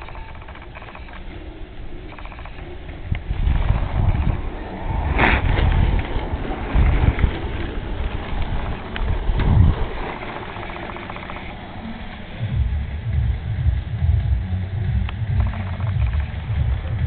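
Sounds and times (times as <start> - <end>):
microphone handling rumble: 0.0 - 17.0.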